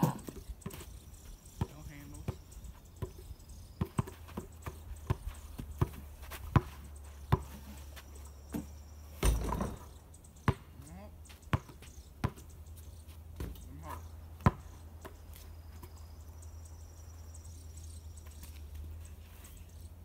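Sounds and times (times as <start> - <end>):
basketball bouncing: 3.8 - 7.6, 8.5 - 10.7, 11.5 - 12.4, 14.4 - 15.2.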